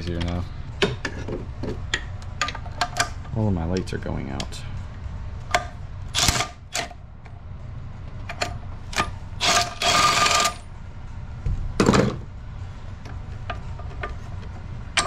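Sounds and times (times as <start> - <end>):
ratchet wrench clicking: 8.9 - 10.6.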